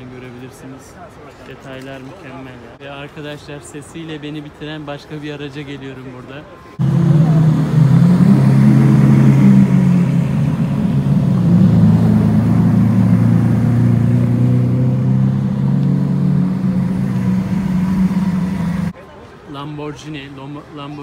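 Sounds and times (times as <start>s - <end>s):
car engines droning: 6.5s - 19.0s.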